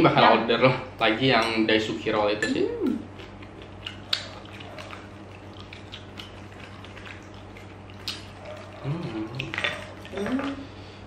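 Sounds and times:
wet mouth clicks: 0:02.9 - 0:10.6
person humming: 0:08.8 - 0:10.7.

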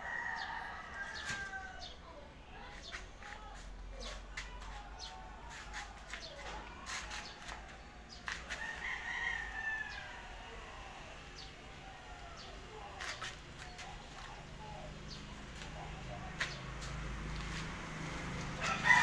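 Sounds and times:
rooster crowing: 0:00.0 - 0:01.9, 0:08.5 - 0:11.2, 0:18.5 - 0:19.0.

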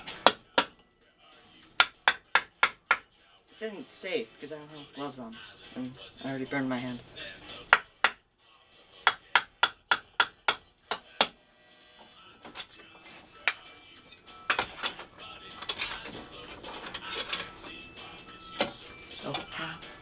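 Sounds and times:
hammer striking metal: 0:01.8 - 0:03.1.

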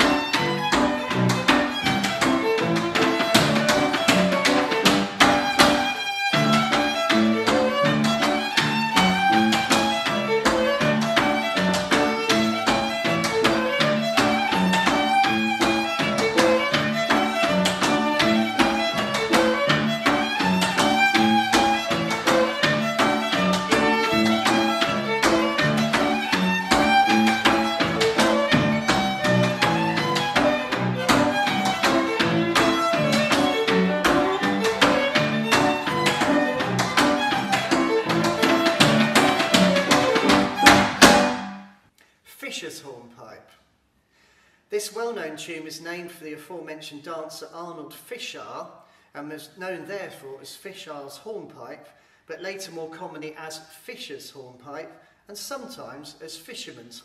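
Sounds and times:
fiddle melody: 0:00.0 - 0:41.7.

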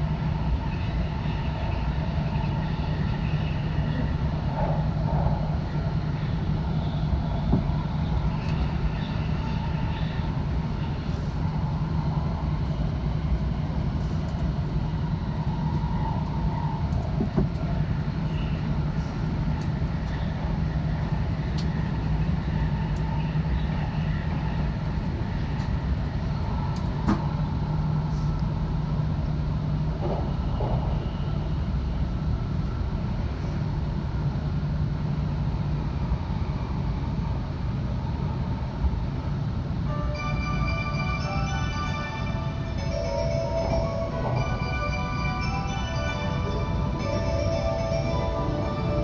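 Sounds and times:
train low rumble: 0:00.0 - 0:49.0.

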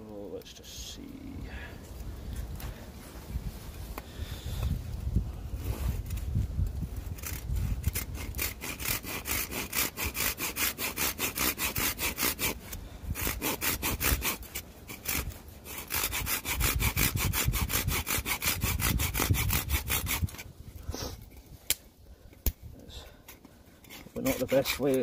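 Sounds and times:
saw cutting wooden branch: 0:05.6 - 0:21.8, 0:23.2 - 0:25.0.

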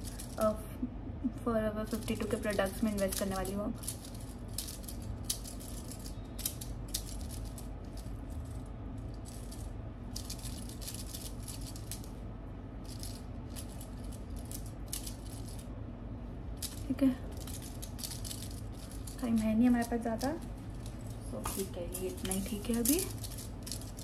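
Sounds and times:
bangles clinking and jingling: 0:01.8 - 0:12.1, 0:16.6 - 0:24.0.

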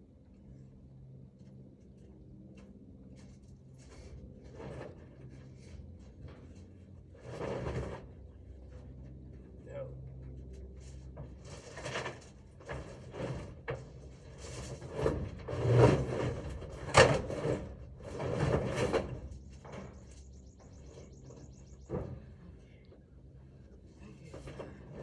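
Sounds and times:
rubbing and scraping: 0:03.2 - 0:09.0, 0:10.8 - 0:22.1.

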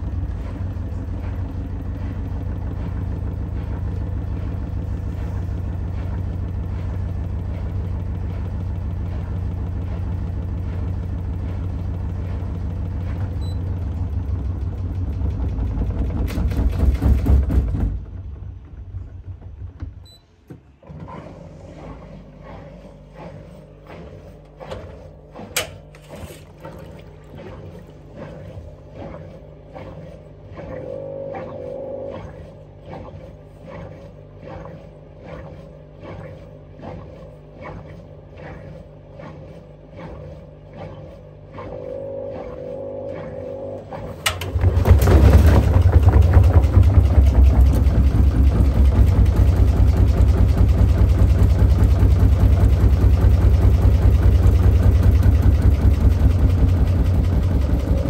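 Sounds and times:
washing machine drum turning: 0:00.0 - 0:29.5, 0:41.7 - 0:58.0
drum spinning with low hum: 0:00.0 - 0:58.0
motor whine: 0:20.8 - 0:58.0.

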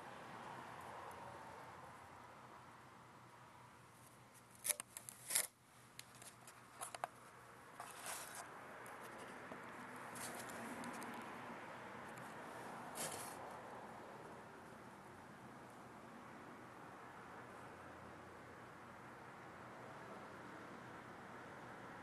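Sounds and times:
handling clicks and rustles: 0:04.0 - 0:11.3.

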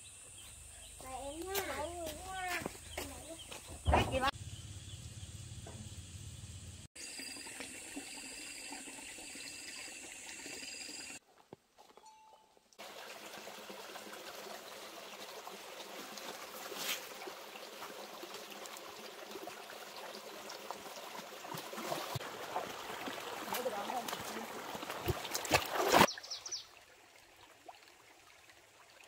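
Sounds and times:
stream running over stones: 0:07.0 - 0:11.2, 0:12.8 - 0:29.0
water splash: 0:21.4 - 0:26.3.

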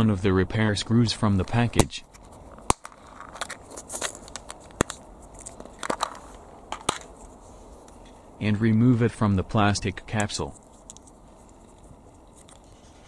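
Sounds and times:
plastic capsules crackling: 0:02.6 - 0:07.4.

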